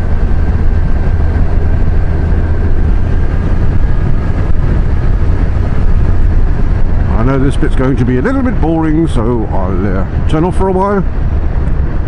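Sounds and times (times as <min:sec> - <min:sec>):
motorcycle engine drone: 0:00.0 - 0:12.0
road rumble: 0:00.0 - 0:12.0
wind: 0:00.0 - 0:12.0.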